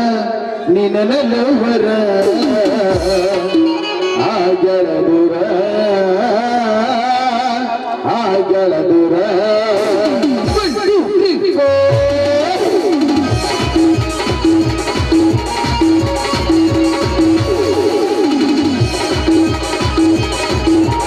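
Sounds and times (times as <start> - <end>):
light percussion: 9.8 - 21.0.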